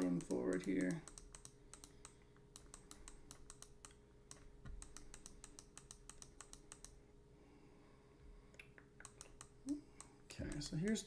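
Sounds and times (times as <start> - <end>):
faint keyboard typing: 0.0 - 7.0, 8.5 - 11.0.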